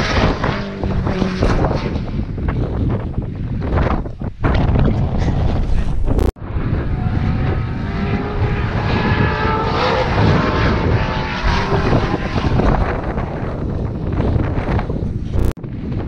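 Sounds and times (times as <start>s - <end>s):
wind buffeting microphone: 0.0s - 16.0s
racing car engine passing: 6.4s - 13.4s.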